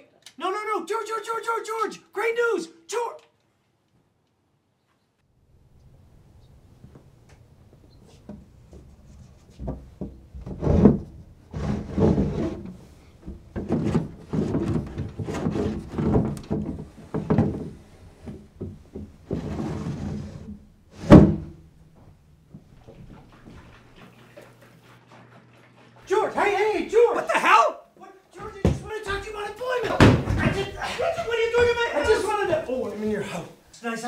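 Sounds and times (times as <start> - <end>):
bumps and scraping on window frame: 8.0 - 21.6
loud thud: 21.0 - 21.6, 29.8 - 30.7.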